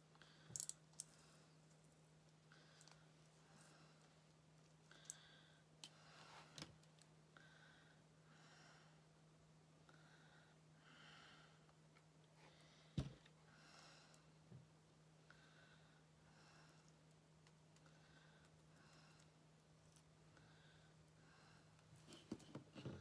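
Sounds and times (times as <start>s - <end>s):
faint steady hum: 0.0s - 23.0s
soft breathing: 2.4s - 6.7s, 7.3s - 9.1s, 9.9s - 14.5s, 15.2s - 17.1s, 17.8s - 19.4s, 20.3s - 22.3s.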